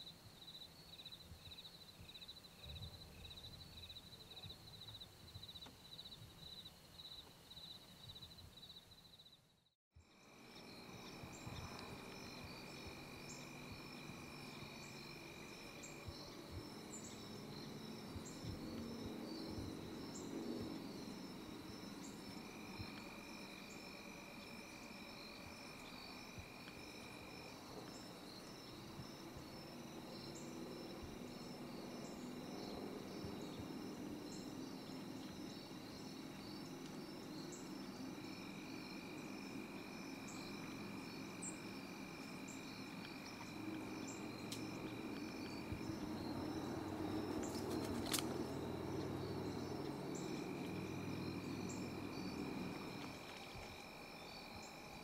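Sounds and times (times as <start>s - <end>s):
crickets chirping and trilling: 0.0s - 55.0s
long low insect trill: 0.0s - 55.0s
pulsing high insect trill: 10.0s - 55.0s.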